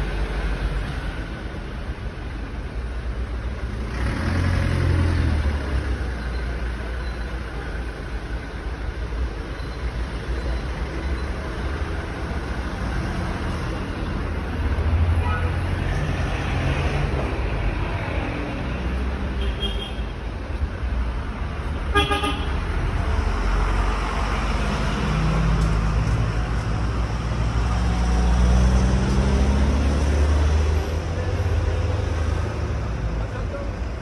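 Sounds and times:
vehicle engine rumbling: 0.0s - 34.0s
car horn toot: 21.9s - 22.6s.

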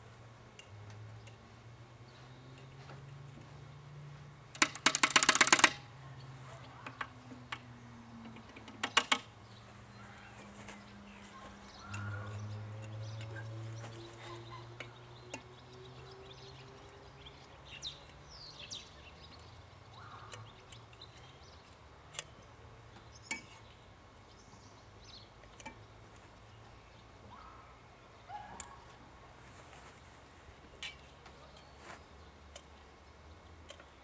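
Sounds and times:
oil can clicking and tapping: 4.6s - 5.8s
birds chirping: 6.0s - 29.1s.

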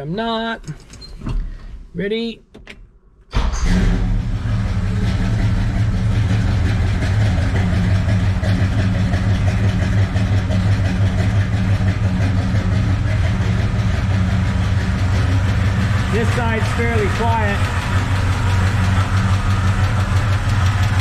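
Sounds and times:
pickup engine idling: 3.4s - 21.0s
valve-train ticking: 13.0s - 21.0s.

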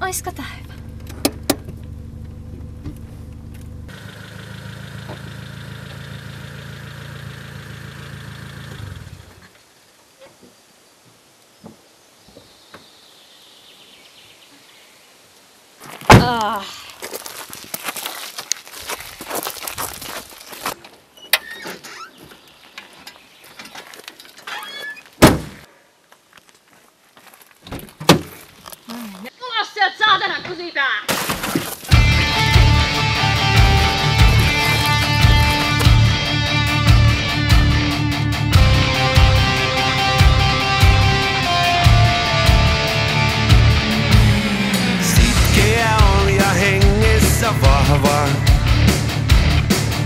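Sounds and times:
car engine from inside cabin: 0.0s - 9.4s, 31.9s - 37.3s, 43.5s - 45.5s
car engine from outside: 0.0s - 9.6s, 31.8s - 50.0s.

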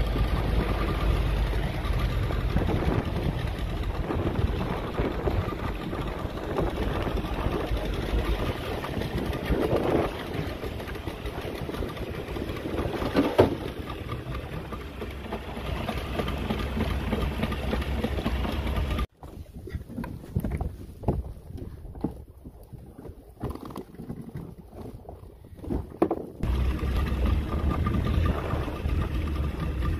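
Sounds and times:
boat engine running: 0.0s - 19.1s, 26.4s - 29.9s
water washing along hull: 0.0s - 19.5s, 24.5s - 29.9s
wind: 0.0s - 29.9s.

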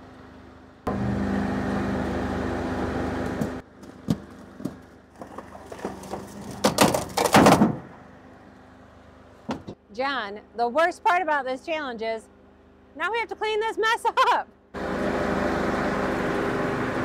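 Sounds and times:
firewood processor humming: 0.0s - 9.9s, 14.6s - 17.0s.

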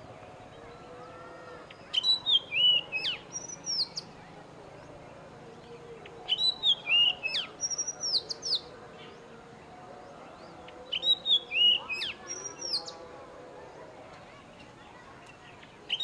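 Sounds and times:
bird singing whistled notes: 1.9s - 4.1s, 6.3s - 8.7s, 10.4s - 13.0s.

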